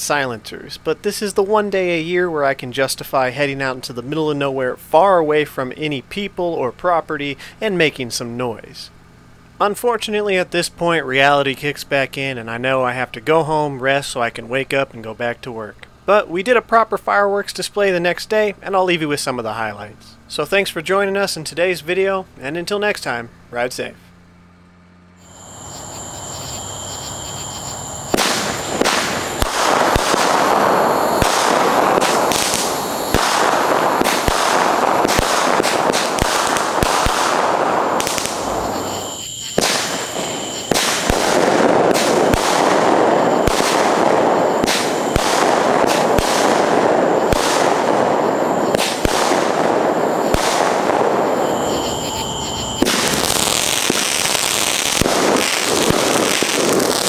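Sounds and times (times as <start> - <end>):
fireworks crackling and banging: 25.2 - 57.0.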